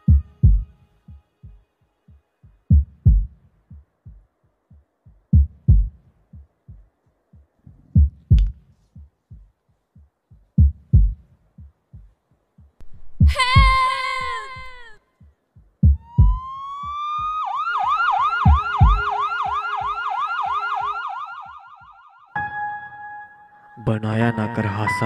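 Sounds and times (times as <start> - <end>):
heartbeat thumps: 0.0 - 21.1
siren with falling pitch: 16.0 - 22.4.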